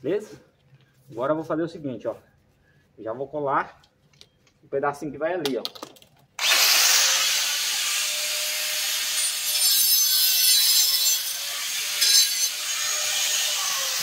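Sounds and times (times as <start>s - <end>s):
angle grinder cutting plastic pipe: 6.4s - 14.0s.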